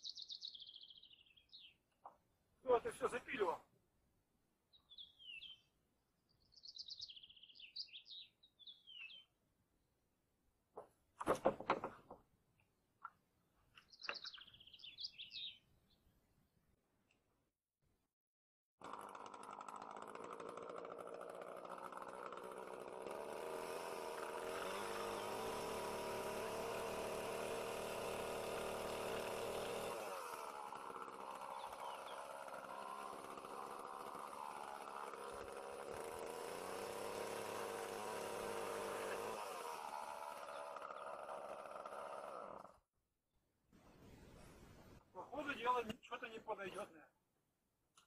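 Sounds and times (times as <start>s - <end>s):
chainsaw cutting wood: 18.8s - 42.9s.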